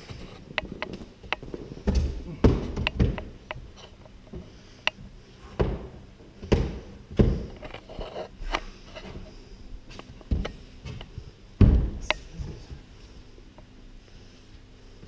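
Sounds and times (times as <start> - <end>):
climbing wall thumps and taps: 0.5 - 7.6, 10.0 - 12.5.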